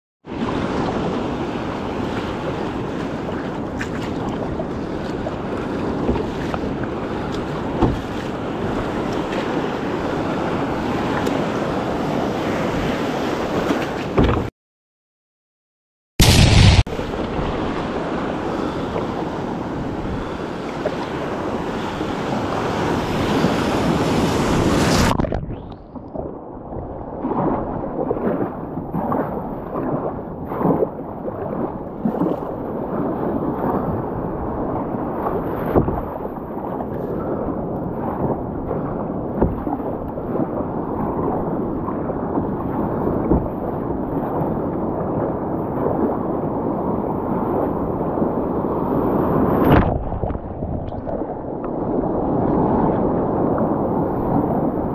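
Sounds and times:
waves washing against hull: 0.2s - 14.5s, 16.2s - 54.9s
paddle splashing: 0.3s - 14.5s, 27.1s - 46.1s, 47.4s - 54.9s.

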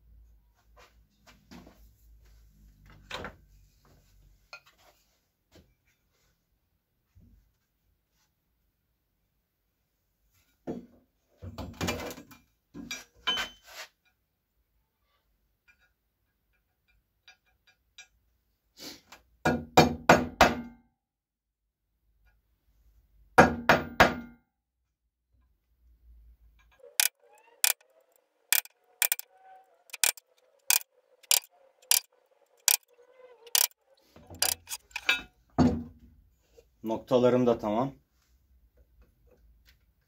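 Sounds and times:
hammer tapping punch on steel: 28.5s - 29.2s, 29.9s - 32.8s, 33.5s - 33.8s, 34.4s - 35.1s.

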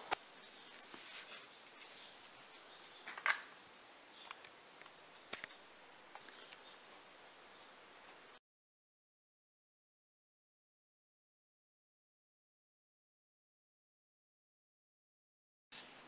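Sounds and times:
soft rubbing of plastic parts: 0.1s - 2.7s.

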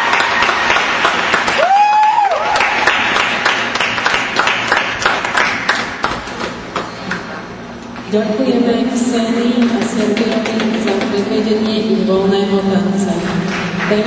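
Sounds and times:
crowd cheering: 0.0s - 5.9s
audience applauding: 0.0s - 6.9s.

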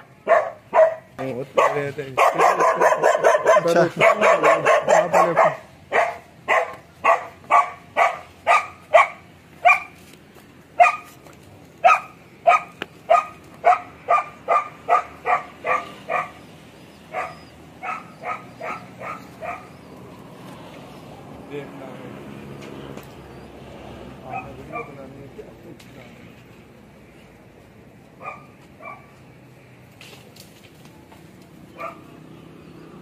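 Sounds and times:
dog barking: 0.2s - 10.0s, 10.8s - 11.1s, 11.8s - 16.4s, 17.1s - 19.7s, 24.3s - 25.0s, 28.2s - 29.2s, 31.8s - 32.1s.

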